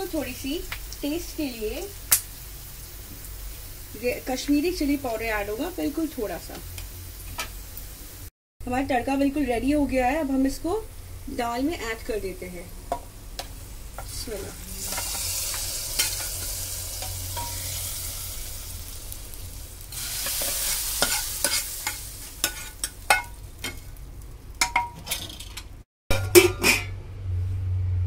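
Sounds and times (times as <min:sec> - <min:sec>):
hot oil sizzling: 0:00.0 - 0:26.9
ladle scraping a pan: 0:14.8 - 0:17.8, 0:20.0 - 0:23.3.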